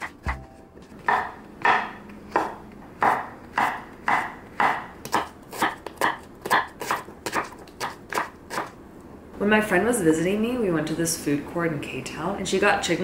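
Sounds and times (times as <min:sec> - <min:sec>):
knife chopping on wooden board: 0:01.0 - 0:08.7.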